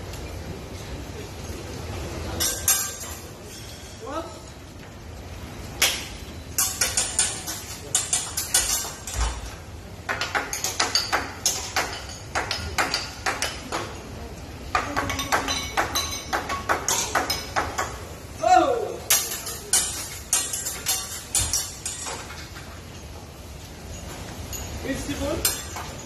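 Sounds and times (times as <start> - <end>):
metal spatulas clattering on griddle: 2.4 - 3.9, 5.8 - 14.1, 14.7 - 18.1, 19.1 - 22.8, 24.9 - 26.0.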